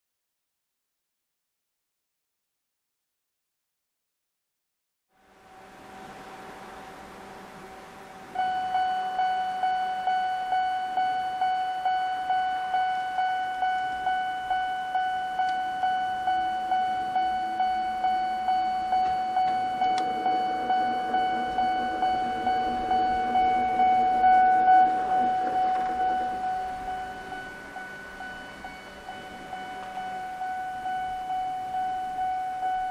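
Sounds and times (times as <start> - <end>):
low steady hum: 5.2 - 32.9
level crossing warning bell: 8.3 - 32.9.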